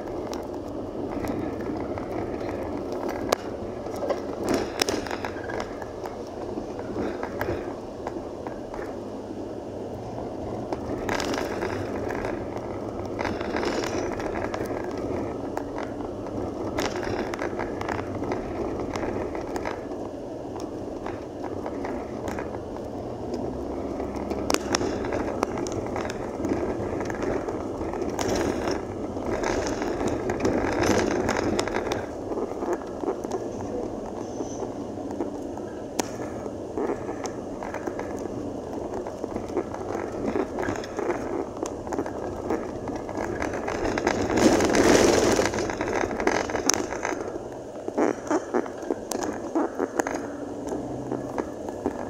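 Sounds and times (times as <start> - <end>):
tyres rumbling on dirt road: 0.0 - 52.0
vehicle rattling and knocking: 0.0 - 52.0.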